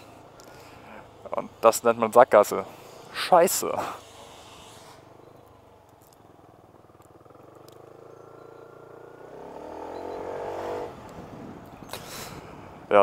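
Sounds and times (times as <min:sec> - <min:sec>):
scooter engine accelerating: 0:06.4 - 0:11.4.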